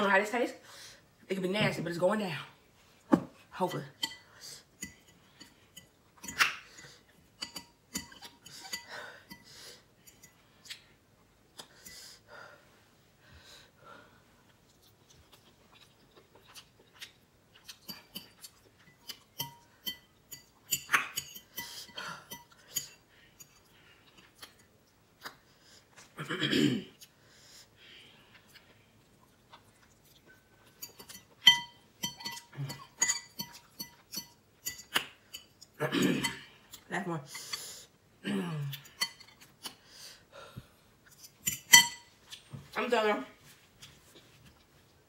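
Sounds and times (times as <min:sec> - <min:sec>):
metal fork clinking on glass bowl: 0:30.8 - 0:35.5, 0:41.4 - 0:42.1.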